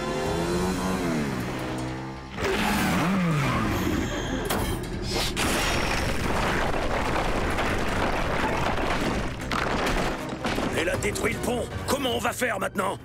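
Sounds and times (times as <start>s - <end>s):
sharp cracks: 5.4s - 10.8s
rock rumbling and crashing: 5.4s - 11.1s.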